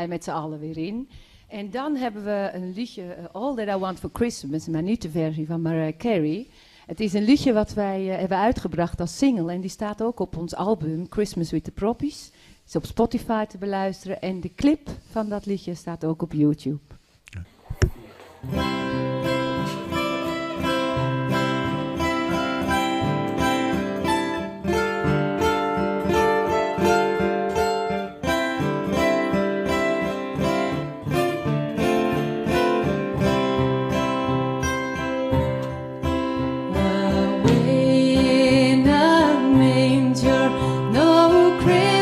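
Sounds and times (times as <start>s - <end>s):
acoustic guitar strumming chords: 18.4s - 42.0s.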